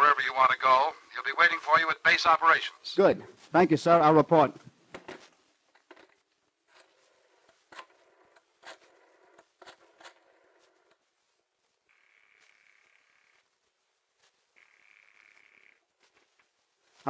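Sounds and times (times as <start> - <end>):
telephone ringing: 6.8 - 11.1, 11.9 - 16.4.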